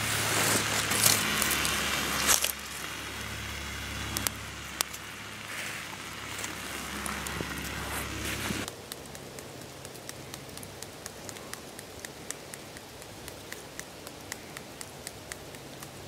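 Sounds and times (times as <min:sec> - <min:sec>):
campfire pops and crackles: 0:00.0 - 0:16.0.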